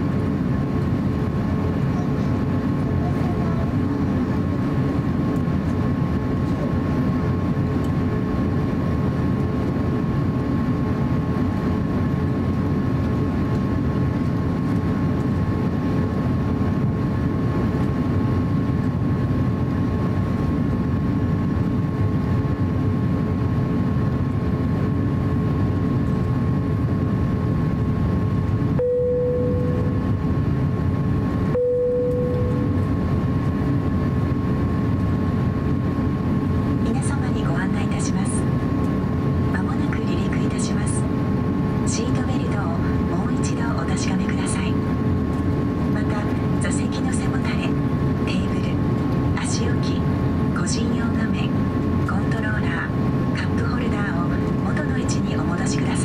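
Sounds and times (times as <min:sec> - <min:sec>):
aircraft cabin rumble and hiss: 0:00.0 - 0:56.0
faint steady whine: 0:00.0 - 0:56.0
steady tone: 0:28.7 - 0:30.2, 0:31.4 - 0:33.1.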